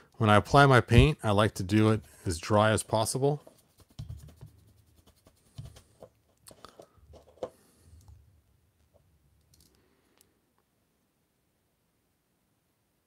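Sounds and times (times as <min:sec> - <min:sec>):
plastic figure handled: 0:03.4 - 0:08.2, 0:08.8 - 0:10.3
paintbrush tapping on paper cup: 0:03.8 - 0:06.2.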